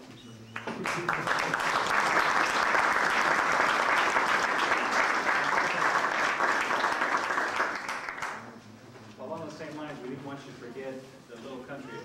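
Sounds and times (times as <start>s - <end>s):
people applauding: 0.5s - 8.5s.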